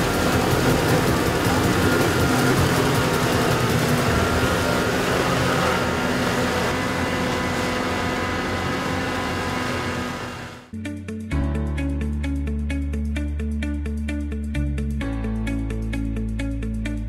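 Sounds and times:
mower cutting long grass: 0:00.0 - 0:10.7
tractor flail mower running: 0:00.0 - 0:10.7.

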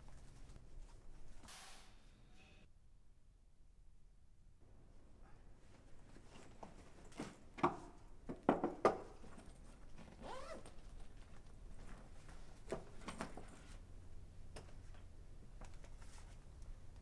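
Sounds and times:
backpack knocking on wooden table: 0:08.3 - 0:09.1
zipper pulled open: 0:10.0 - 0:10.8.

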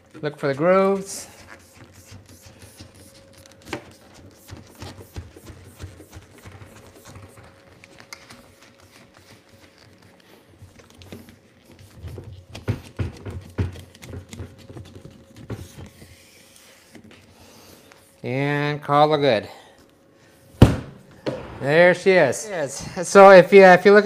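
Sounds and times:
louder thumps: 0:20.6 - 0:21.9.

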